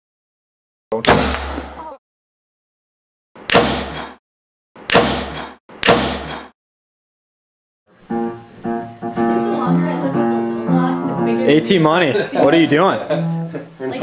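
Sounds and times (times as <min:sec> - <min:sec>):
acoustic guitar music: 0:07.9 - 0:14.0.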